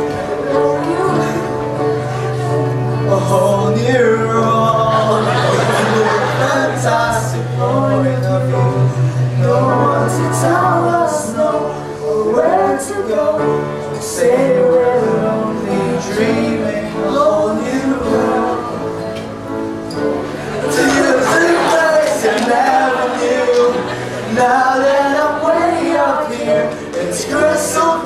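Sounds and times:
man singing: 0.0 - 19.2, 20.6 - 28.0
musical accompaniment: 0.0 - 28.0.

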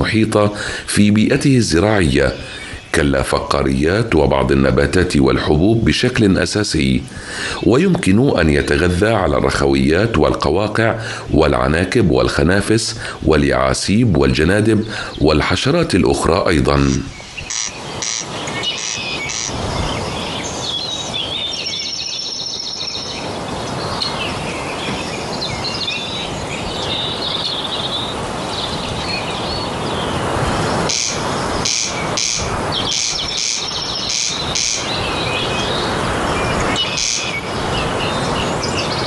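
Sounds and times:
ambient hiss: 0.0 - 39.0
small birds chirping: 0.0 - 39.0
corncrake rasping call: 16.7 - 19.6, 30.8 - 35.9, 36.6 - 38.6.

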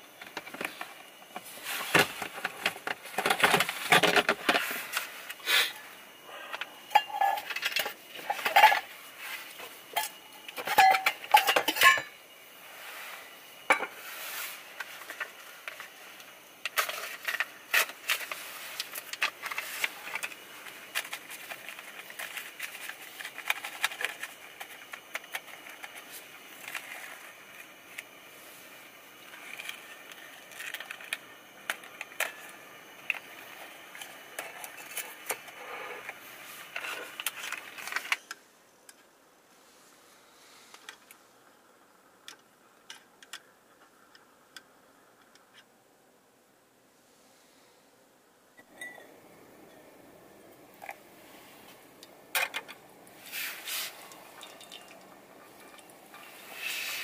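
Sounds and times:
metal cookware clinking: 6.9 - 8.9, 10.0 - 12.2.

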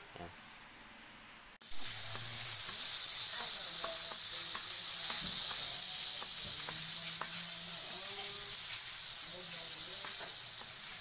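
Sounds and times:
butter sizzling in a pan: 1.6 - 11.0.

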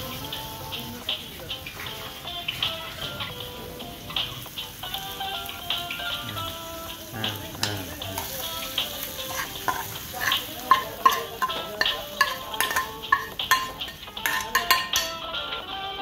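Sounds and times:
oil sizzling: 0.0 - 16.0
metal spoon scraping frying pan: 7.6 - 15.2.

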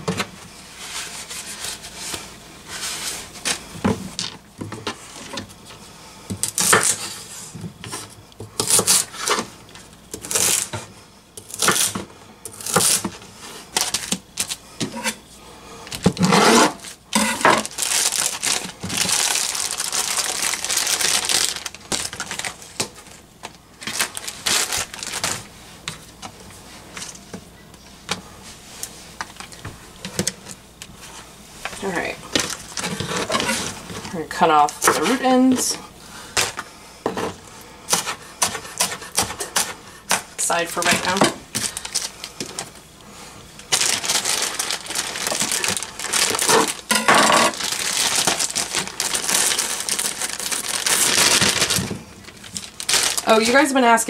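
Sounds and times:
plastic bag crinkling: 10.2 - 10.8, 15.9 - 25.5, 31.7 - 34.0, 40.5 - 42.9, 43.6 - 54.0.

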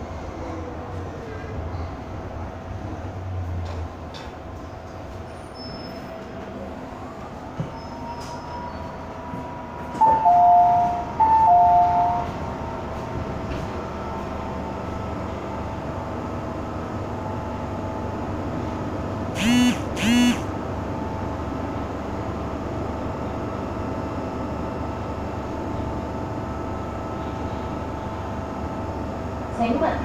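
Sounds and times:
faint motor whine: 19.4 - 20.5.

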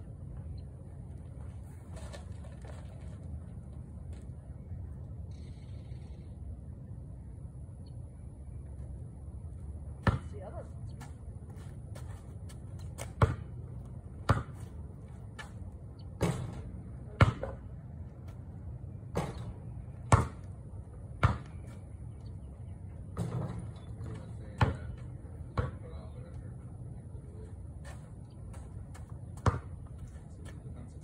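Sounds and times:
basketball bouncing on pavement: 10.0 - 21.9, 23.1 - 26.1, 27.8 - 30.6.

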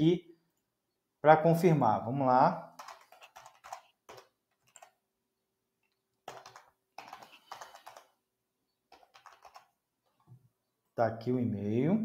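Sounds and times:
faint typing on keyboard: 2.7 - 5.1, 5.8 - 8.2, 8.8 - 10.4.

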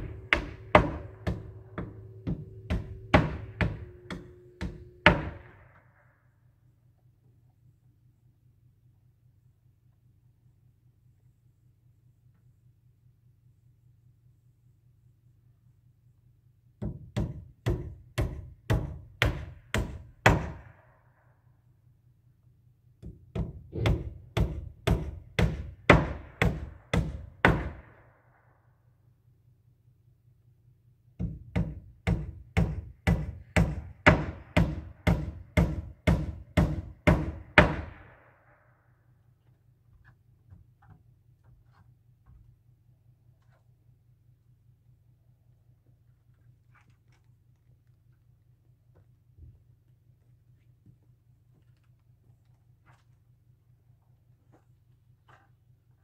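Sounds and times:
hammer striking wood: 0.0 - 5.8, 16.8 - 20.8, 23.0 - 28.0, 31.2 - 38.2.

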